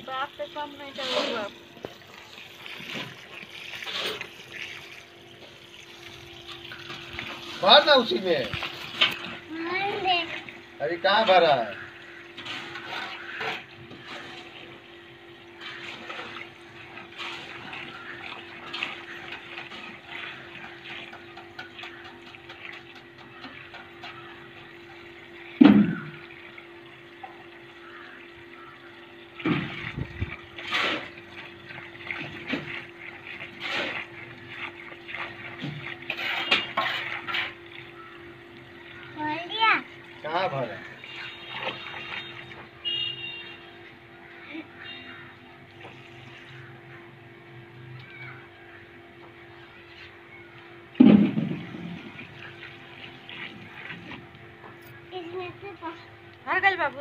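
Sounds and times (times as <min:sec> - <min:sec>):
steady hum: 0:00.0 - 0:57.0
water running through a hose: 0:00.0 - 0:57.0
knocks and thump: 0:25.6 - 0:26.1, 0:51.0 - 0:52.2.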